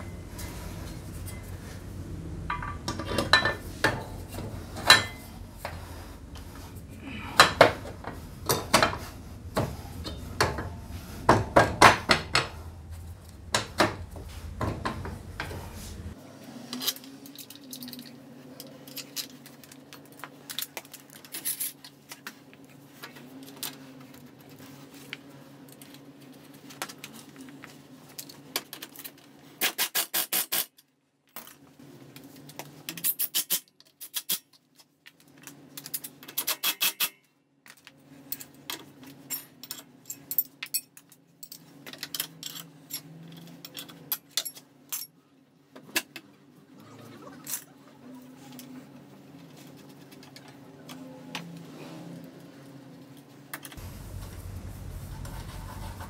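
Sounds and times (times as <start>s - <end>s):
metal tools clinking and scraping: 0.0s - 1.8s, 2.5s - 11.0s, 38.2s - 45.2s
steady low hum: 0.0s - 16.5s, 53.8s - 56.0s.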